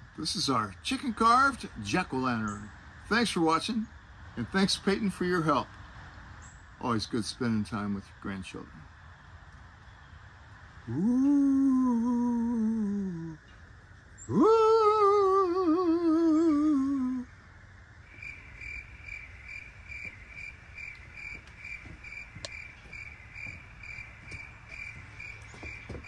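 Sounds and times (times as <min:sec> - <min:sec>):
crickets chirping: 0:00.0 - 0:26.0
spooky wavering ooh voice: 0:10.8 - 0:13.5, 0:14.3 - 0:17.3.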